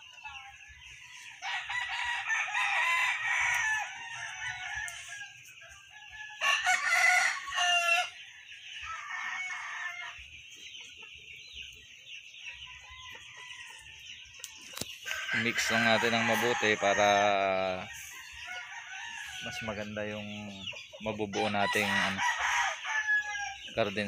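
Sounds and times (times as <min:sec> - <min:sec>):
chickens clucking: 0:00.0 - 0:24.0
rooster crowing: 0:01.4 - 0:05.4, 0:06.1 - 0:08.2, 0:08.9 - 0:10.2, 0:15.1 - 0:20.1, 0:21.3 - 0:23.7.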